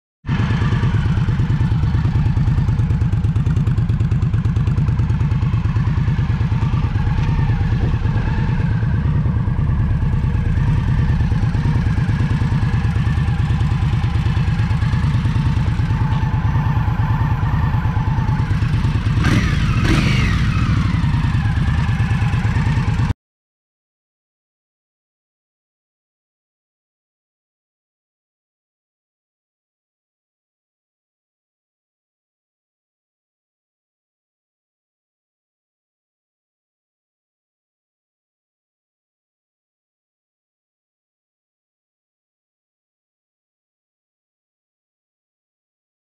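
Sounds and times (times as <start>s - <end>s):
motorcycle engine idling: 0.3s - 23.1s.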